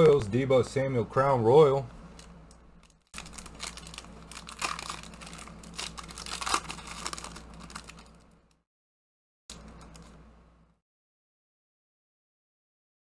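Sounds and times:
foil wrapper crinkling and tearing: 0:02.2 - 0:08.6.

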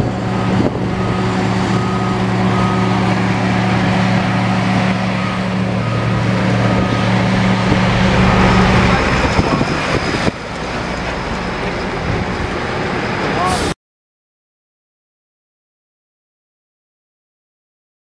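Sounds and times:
diesel trucks driving past: 0:00.0 - 0:13.8
road noise: 0:00.0 - 0:13.8.

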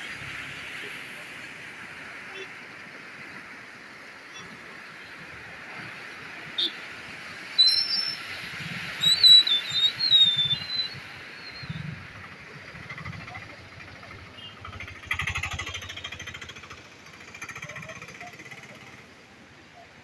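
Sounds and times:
floodwater rushing: 0:00.0 - 0:20.0.

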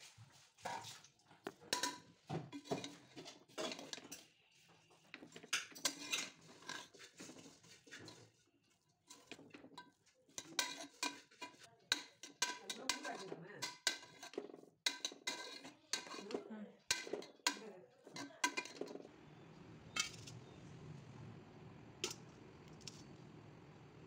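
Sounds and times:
spatula scraping cooking pot: 0:00.6 - 0:19.1.

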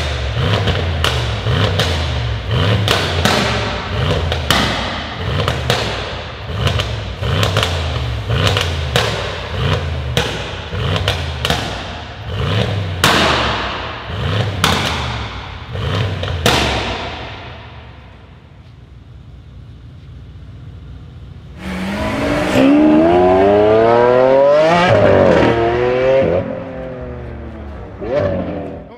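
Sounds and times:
car engine revving: 0:00.0 - 0:18.3, 0:21.2 - 0:28.9
exhaust pops and bangs: 0:00.0 - 0:18.4.

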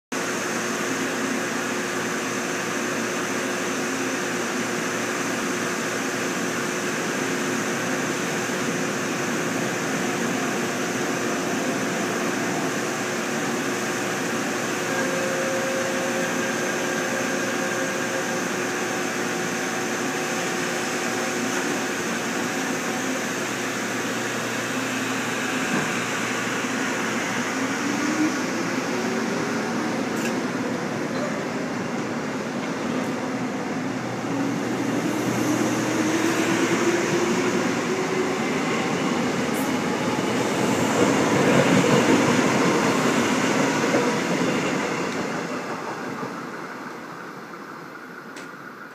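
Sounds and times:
electric train motors humming: 0:00.2 - 0:48.9
train tone rising in pitch: 0:09.9 - 0:48.8.

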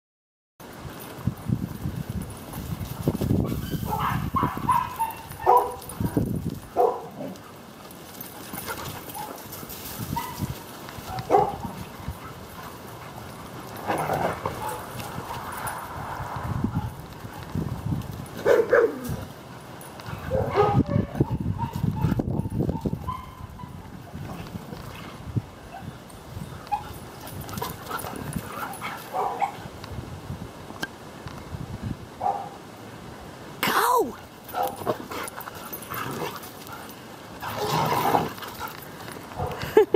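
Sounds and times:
dogs yipping: 0:03.4 - 0:07.6, 0:08.4 - 0:12.8, 0:13.8 - 0:15.8, 0:18.4 - 0:19.2, 0:20.1 - 0:23.9, 0:26.6 - 0:29.7, 0:34.4 - 0:38.8.

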